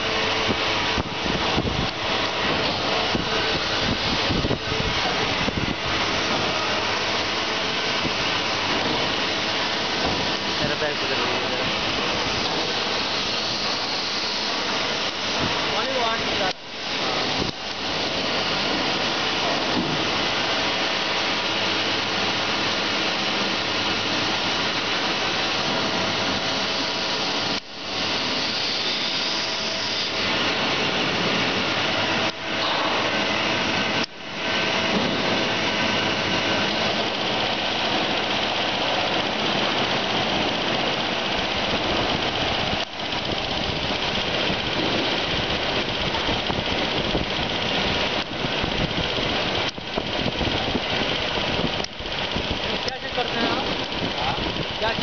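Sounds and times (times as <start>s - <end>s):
workshop machinery hiss and hum: 0.0s - 55.0s.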